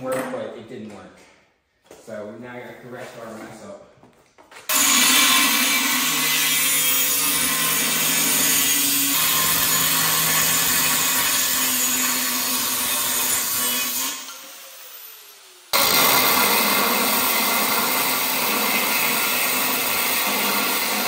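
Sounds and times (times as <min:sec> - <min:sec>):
angle grinder cutting metal: 0:04.7 - 0:21.0.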